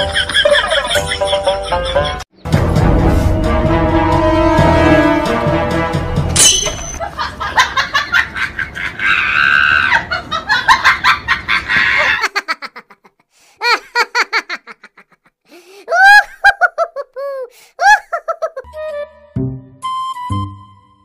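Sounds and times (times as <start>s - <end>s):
people laughing: 0.0s - 2.2s, 7.0s - 15.3s, 15.9s - 18.7s.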